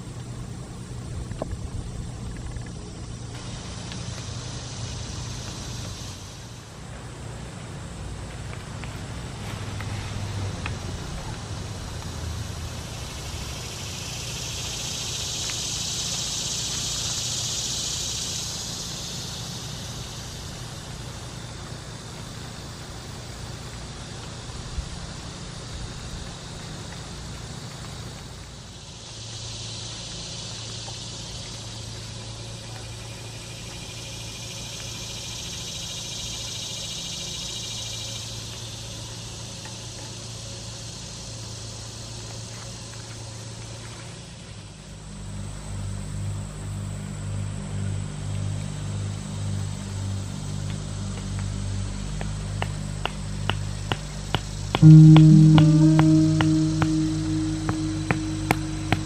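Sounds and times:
cicadas buzzing: 0.0 - 59.0
low steady hum: 54.8 - 59.0
sharp knock: 54.8 - 59.0.

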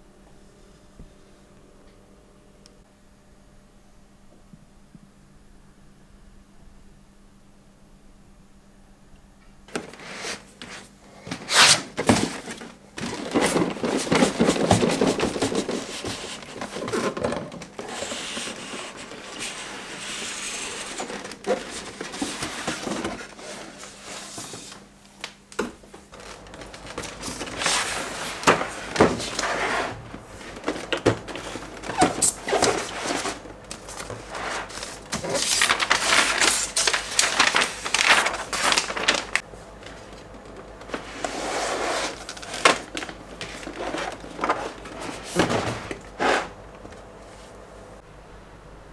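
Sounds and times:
cardboard rubbing and scraping: 9.8 - 24.8, 26.2 - 39.4, 40.8 - 46.6.

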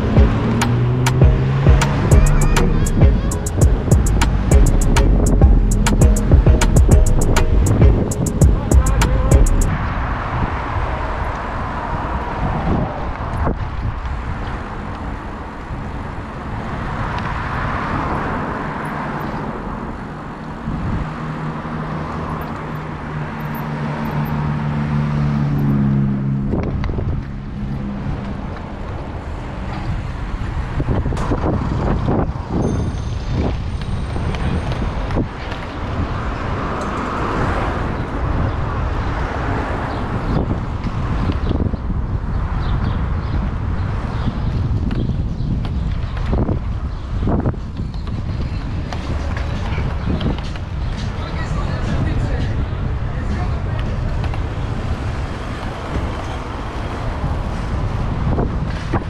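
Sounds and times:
vehicle engine hum: 0.0 - 11.2
wind buffeting microphone: 0.0 - 18.4, 25.7 - 59.0
city street traffic: 0.0 - 59.0.

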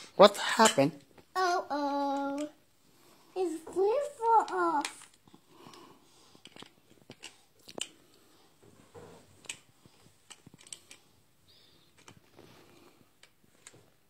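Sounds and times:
plastic toy bricks clicking: 2.0 - 2.5, 4.4 - 5.8, 6.4 - 8.0, 10.3 - 11.0, 11.9 - 12.2.

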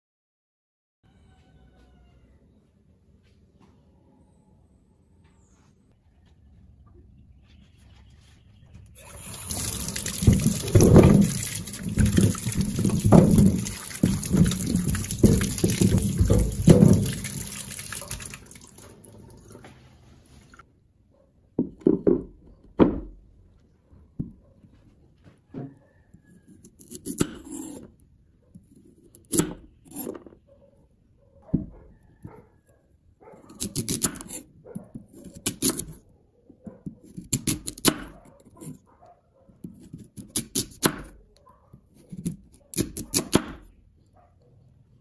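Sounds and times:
tap water running into sink: 9.0 - 19.8
knife cutting on chopping board: 33.5 - 34.4, 35.1 - 36.0.

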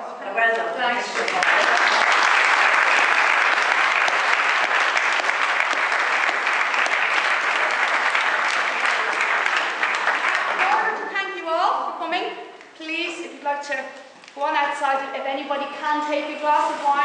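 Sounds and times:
audience applauding: 1.1 - 11.0.

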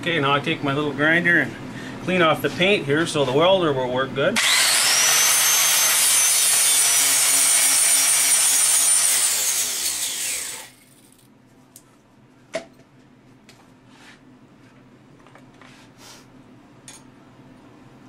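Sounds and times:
angle grinder grinding metal: 4.4 - 11.1.

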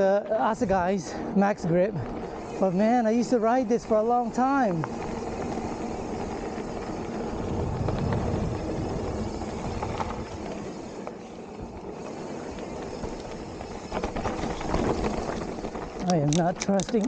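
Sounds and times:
bike tyres rolling over dirt: 0.0 - 17.0
bike knocks and rattles: 4.0 - 17.0.

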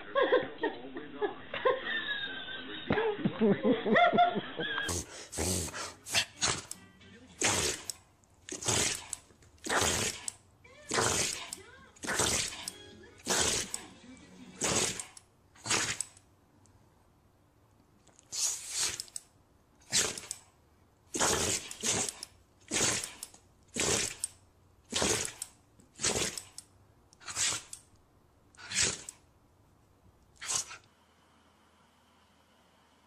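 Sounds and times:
dog sneezing: 4.8 - 6.7, 7.4 - 7.9, 8.5 - 10.3, 14.6 - 16.0, 18.3 - 19.1, 19.9 - 20.3, 26.0 - 26.4, 27.2 - 27.7, 30.4 - 30.8.

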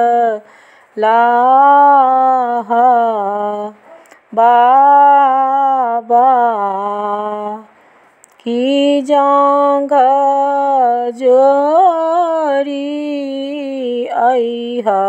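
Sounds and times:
woman singing unaccompanied: 0.0 - 15.0.

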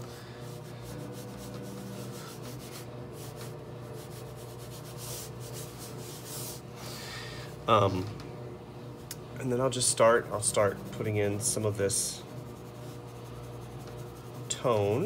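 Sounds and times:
pencil scratching on paper: 0.0 - 6.6, 11.0 - 15.0
steady low hum: 0.0 - 15.0.

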